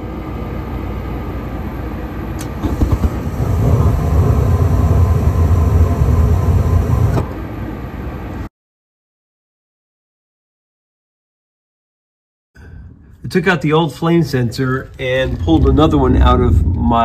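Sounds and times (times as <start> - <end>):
gas burners rumbling: 0.0 - 8.5, 12.6 - 17.0
draft inducer motor running: 2.4 - 7.4.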